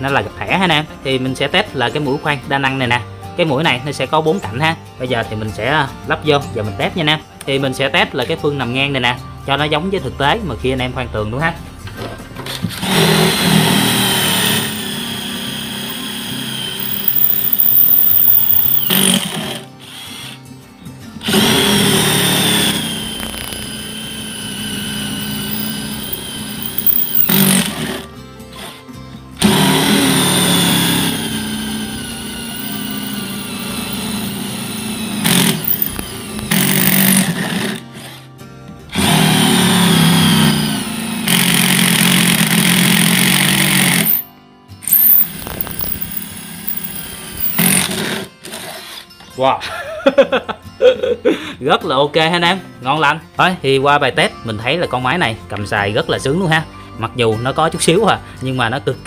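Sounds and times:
impact wrench drilling into brick: 12.7s - 20.3s, 21.2s - 28.1s, 29.4s - 37.8s, 39.0s - 48.6s.

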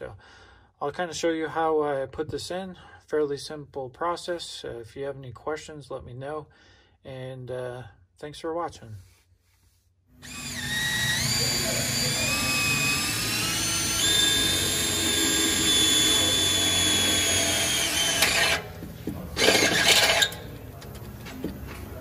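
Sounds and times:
cordless drill drilling into metal: 10.2s - 18.8s, 19.4s - 20.4s.

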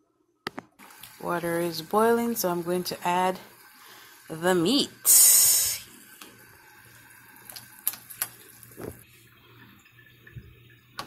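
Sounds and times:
water boiling and bubbling: 0.7s - 11.0s
meat splashing into water: 7.5s - 9.0s.

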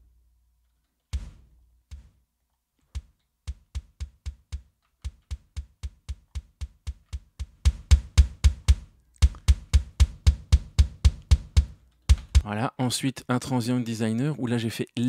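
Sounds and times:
kick drum hits: 1.1s - 2.2s, 2.9s - 12.5s.

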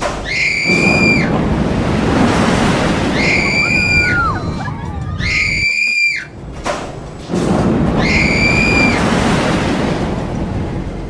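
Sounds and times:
rushing noise of moving ride: 0.0s - 11.0s
riders screaming: 0.2s - 1.4s, 3.1s - 6.3s, 8.0s - 9.0s.

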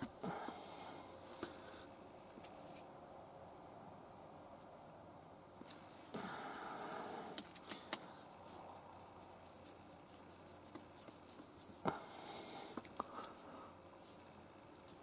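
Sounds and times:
rustle: 2.3s - 3.0s, 5.6s - 15.0s.

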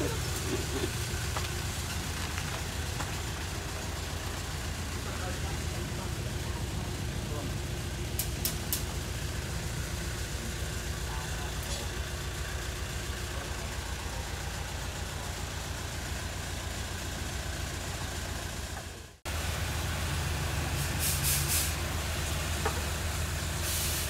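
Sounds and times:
low engine hum: 0.0s - 24.0s
short hisses: 20.8s - 21.8s.

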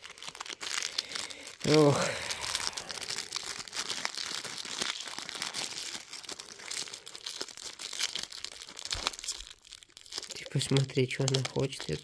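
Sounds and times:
packaging rustling and tearing: 0.0s - 12.0s.

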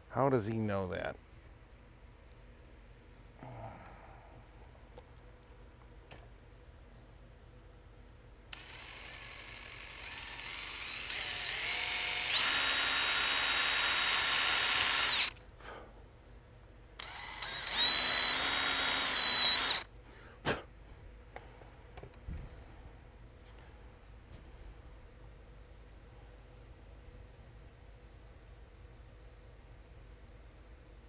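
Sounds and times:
power tool motor whining: 8.5s - 15.4s, 17.0s - 19.9s.

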